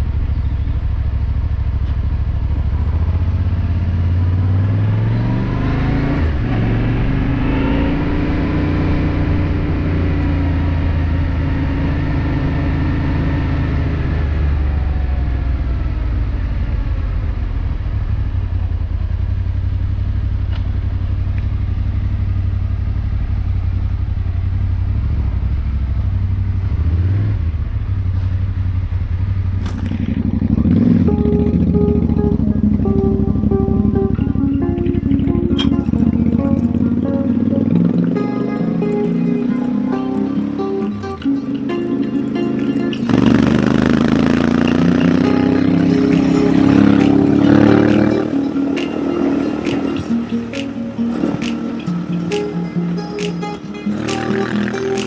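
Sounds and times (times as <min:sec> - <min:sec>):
motorcycle engine running: 0:00.0 - 0:55.0
music: 0:04.0 - 0:15.4, 0:30.5 - 0:55.0.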